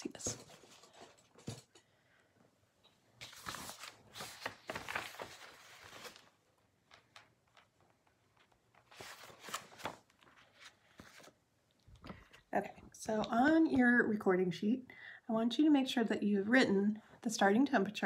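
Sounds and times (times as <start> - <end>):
paper rustling: 3.2 - 12.4.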